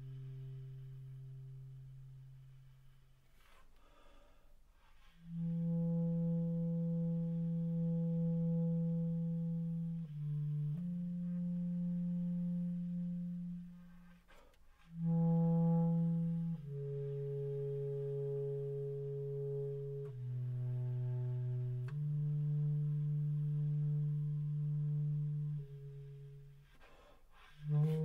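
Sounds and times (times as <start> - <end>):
bass clarinet low notes: 0.0 - 28.0.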